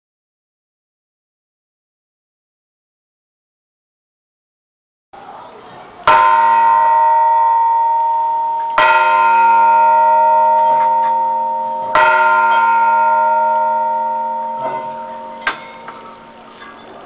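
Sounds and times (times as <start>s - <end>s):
church bell ringing: 6.1s - 17.0s
small metallic clinks: 10.1s - 17.0s.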